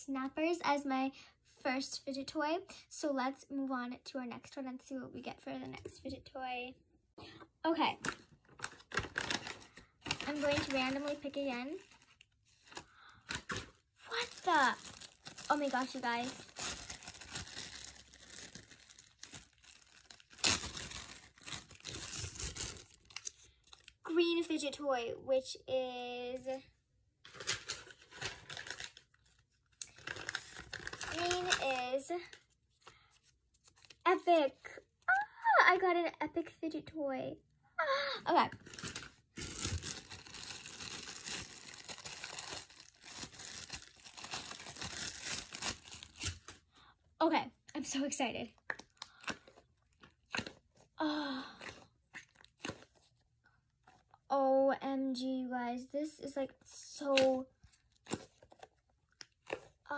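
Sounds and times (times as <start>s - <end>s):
plastic crinkling: 7.9s - 24.0s, 27.3s - 33.0s, 38.5s - 46.6s.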